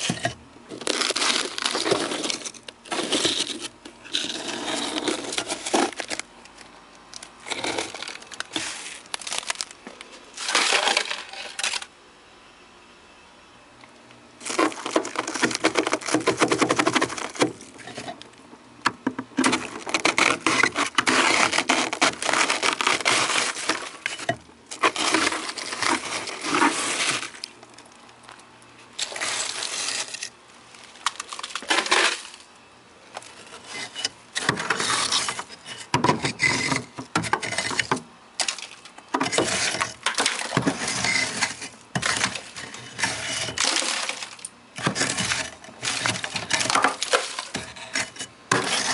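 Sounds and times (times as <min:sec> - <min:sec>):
hand tool scraping ice: 0:00.0 - 0:06.2, 0:07.4 - 0:09.7, 0:14.4 - 0:18.2, 0:19.4 - 0:27.5, 0:29.0 - 0:30.3, 0:31.1 - 0:32.4, 0:33.2 - 0:48.9.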